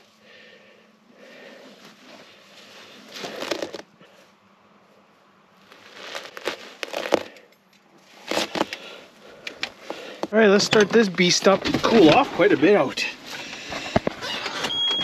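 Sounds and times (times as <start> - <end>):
cloth rustling and crinkling: 1.5 - 4.4, 5.5 - 7.4, 8.0 - 9.1.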